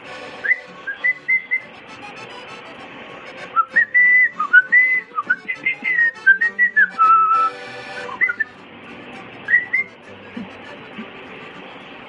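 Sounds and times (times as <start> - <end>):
cockatiel whistling: 0.4 - 1.7, 8.2 - 8.5, 9.5 - 9.9.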